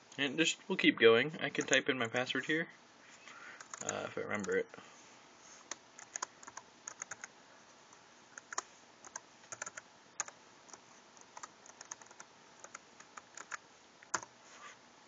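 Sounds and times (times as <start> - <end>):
keyboard keys clicking: 8.4 - 10.3.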